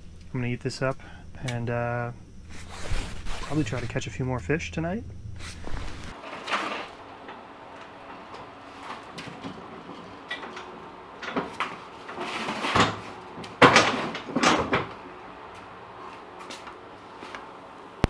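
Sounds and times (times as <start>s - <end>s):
knocks bangs and clatter: 12.6s - 14.9s.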